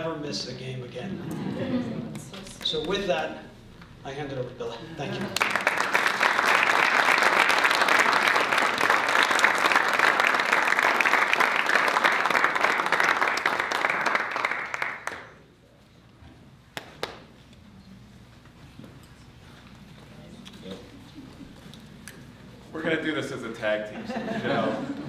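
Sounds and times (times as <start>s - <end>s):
crowd applauding: 5.1s - 15.4s.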